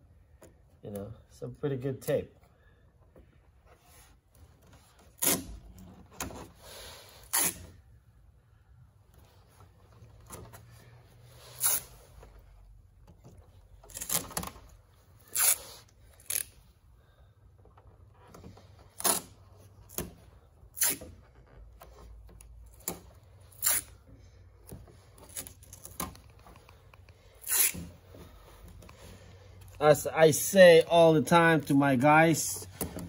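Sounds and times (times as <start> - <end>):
masking tape ripping off roll: 5.0 - 5.9, 6.9 - 7.8, 11.4 - 12.1, 13.8 - 14.6, 15.2 - 16.7, 18.9 - 21.4, 22.7 - 24.0, 27.3 - 28.0.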